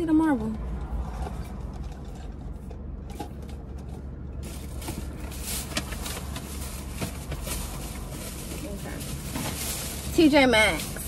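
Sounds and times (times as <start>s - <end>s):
rustling of items being handled: 1.1s - 11.0s.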